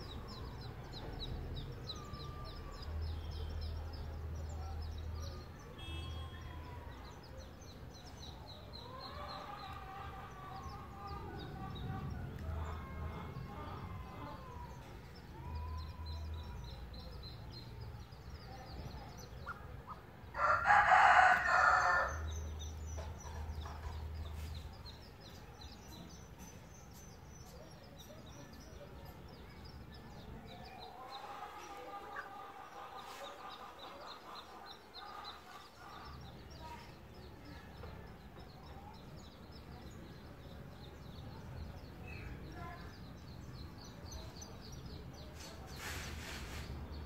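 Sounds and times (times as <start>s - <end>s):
ducklings peeping: 18.7s - 26.6s, 27.4s - 42.0s
rooster crowing: 20.4s - 22.3s.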